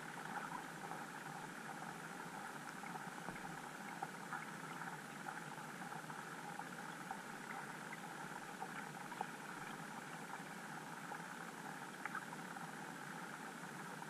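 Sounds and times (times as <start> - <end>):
muffled underwater hiss: 0.0 - 14.0.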